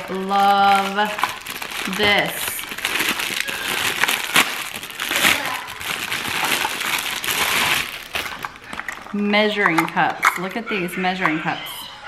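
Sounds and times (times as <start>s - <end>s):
plastic wrapping crinkling: 0.0s - 9.2s.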